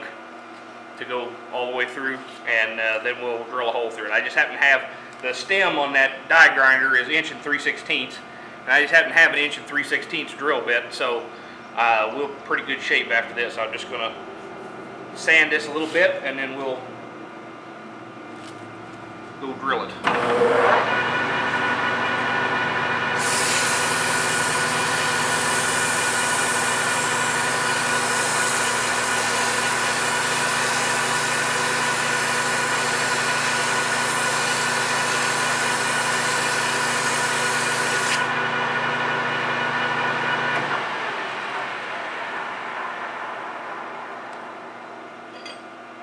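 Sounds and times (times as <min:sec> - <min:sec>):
lathe whining: 0:20.0 - 0:45.4.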